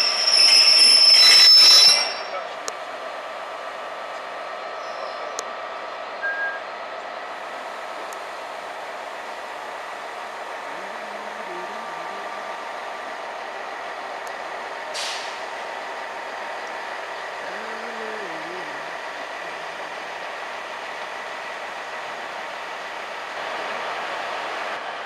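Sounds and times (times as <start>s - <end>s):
short sharp squeak: 0.0s - 2.3s
wheel and brake squeal: 0.0s - 2.4s
train coaches rolling: 0.0s - 25.0s
air hiss: 14.9s - 15.5s.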